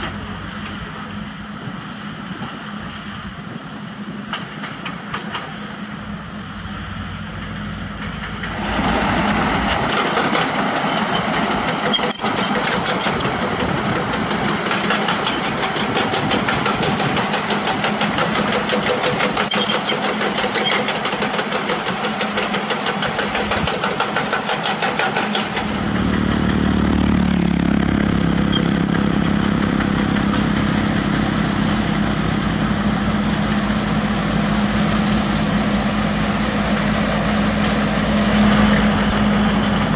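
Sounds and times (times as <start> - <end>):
excavator diesel engine humming: 0.0 - 39.9
bulldozer clattering: 6.7 - 39.9.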